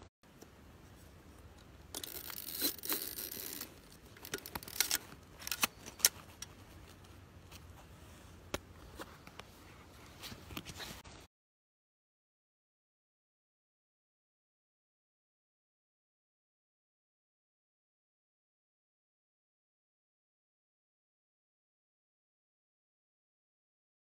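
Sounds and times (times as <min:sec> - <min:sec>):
scraping rustle: 0:02.1 - 0:11.3
camera controls clicking: 0:04.2 - 0:06.2.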